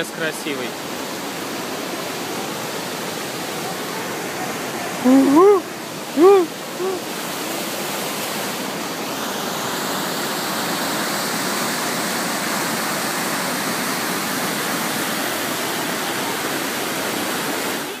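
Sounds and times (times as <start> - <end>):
river rushing over rocks: 0.0 - 18.0.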